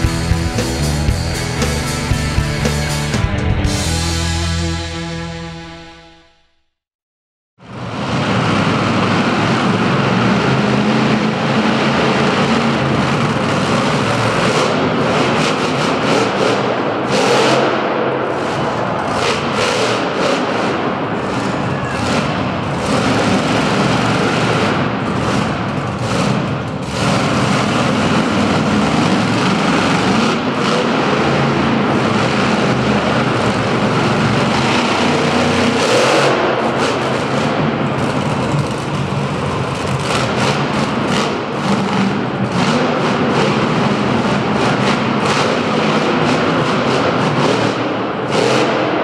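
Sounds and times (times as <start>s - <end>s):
truck engine revving: 0.0s - 6.6s, 7.7s - 49.0s.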